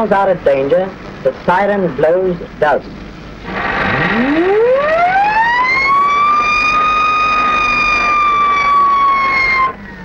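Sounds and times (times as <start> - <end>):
train warning siren: 3.9 - 10.0.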